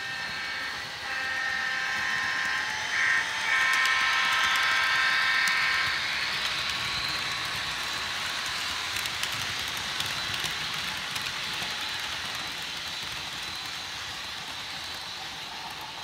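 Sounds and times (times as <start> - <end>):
model train wheels clattering: 0.0 - 16.0.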